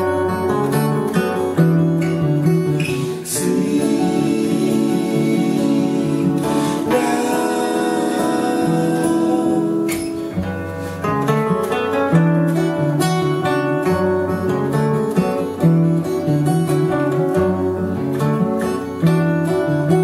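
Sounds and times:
acoustic guitars picking: 0:00.0 - 0:20.0.

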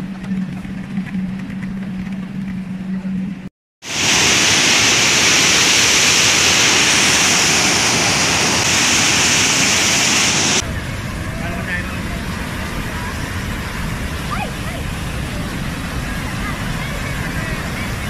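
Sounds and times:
rushing water: 0:03.8 - 0:18.0
waterfall roaring: 0:03.8 - 0:18.0.

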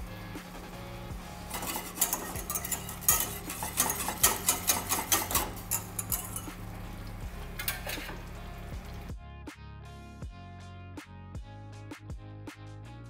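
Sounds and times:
whisk clinking against saucepan: 0:01.5 - 0:06.8, 0:07.5 - 0:08.3.

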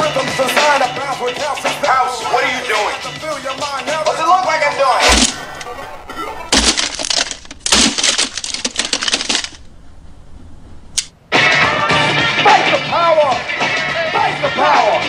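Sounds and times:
plastic crashing and breaking: 0:05.0 - 0:09.7
heavy thump: 0:05.0 - 0:11.0.

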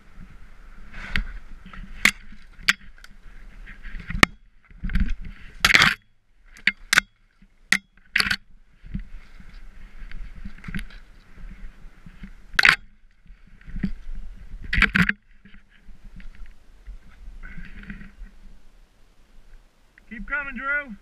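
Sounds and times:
skis hissing through powder snow: 0:00.4 - 0:01.7.

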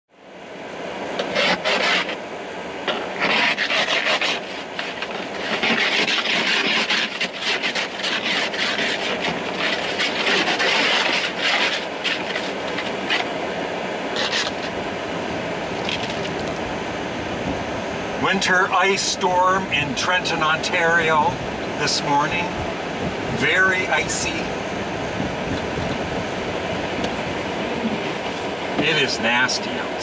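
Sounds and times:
ice scraper scraping windshield: 0:01.2 - 0:02.2, 0:03.2 - 0:13.3, 0:14.2 - 0:14.7.

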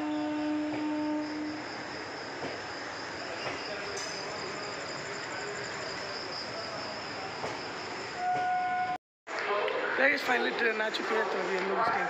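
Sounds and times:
pulsing insect trill: 0:00.0 - 0:08.2
crickets chirping: 0:00.0 - 0:08.8.

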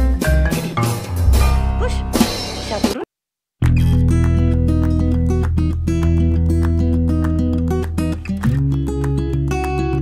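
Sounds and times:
plucked-string tune: 0:01.2 - 0:02.9.

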